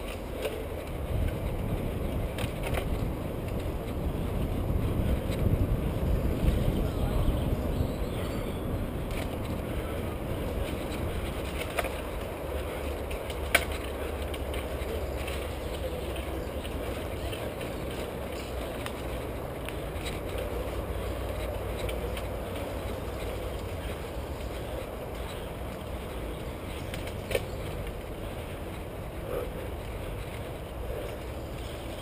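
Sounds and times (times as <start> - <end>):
bike tyres rumbling on dirt: 0.0 - 32.0
wind on microphone: 0.8 - 11.7.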